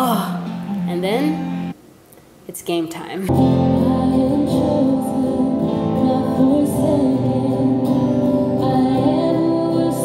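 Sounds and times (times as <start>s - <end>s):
voices singing with band: 3.6s - 10.0s.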